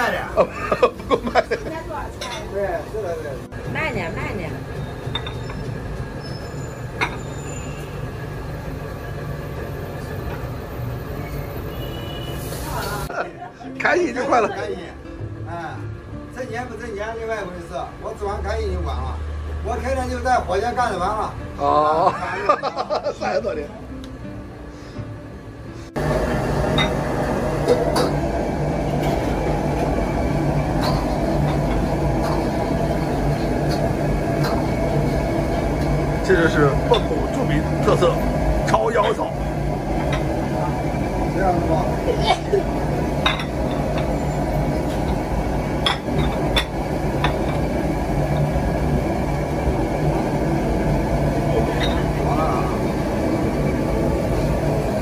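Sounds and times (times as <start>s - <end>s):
busy restaurant rumble: 0.0s - 55.0s
ceramic bowl clink: 5.1s - 5.6s, 26.8s - 27.0s, 43.2s - 44.1s, 45.8s - 47.6s, 51.8s - 52.0s
machine humming: 26.0s - 55.0s.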